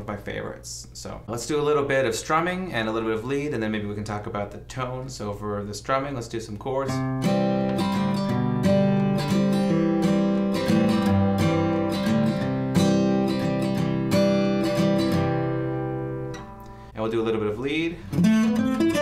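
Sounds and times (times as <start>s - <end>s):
acoustic guitar strumming chords: 6.9s - 19.0s.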